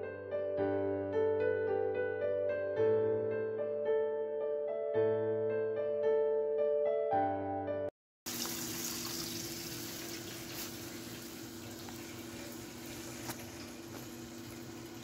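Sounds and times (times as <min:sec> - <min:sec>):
soft piano music: 0:00.0 - 0:07.9
pot boiling with bubbling hiss: 0:08.3 - 0:15.0.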